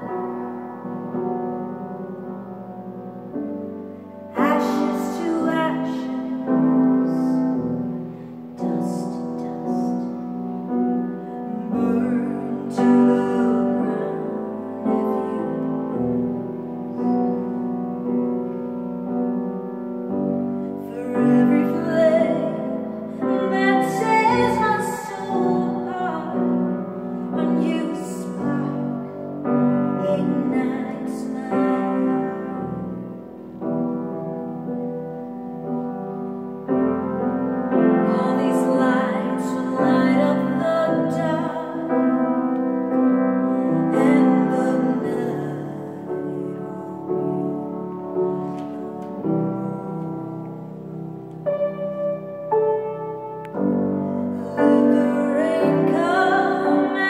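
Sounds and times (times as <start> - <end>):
grand piano accompaniment: 0.0 - 57.0
woman singing a slow ballad: 4.3 - 7.8, 8.5 - 17.7, 20.6 - 33.0, 37.7 - 50.4, 53.9 - 57.0.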